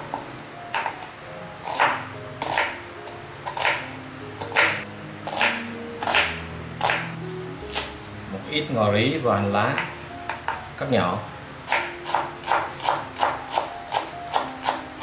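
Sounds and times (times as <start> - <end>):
background music: 0.0 - 15.0
knife chopping on wooden board: 1.7 - 2.8, 3.5 - 3.8, 4.4 - 7.1, 11.7 - 15.0.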